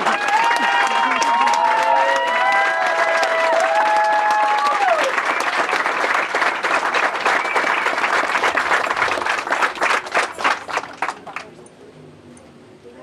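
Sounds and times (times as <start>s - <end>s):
crowd applauding: 0.0s - 11.6s.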